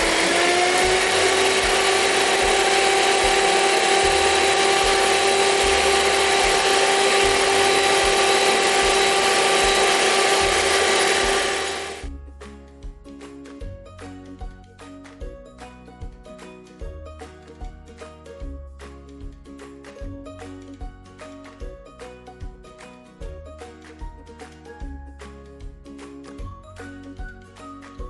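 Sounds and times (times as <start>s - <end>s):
electric hand mixer whirring: 0.0s - 12.1s.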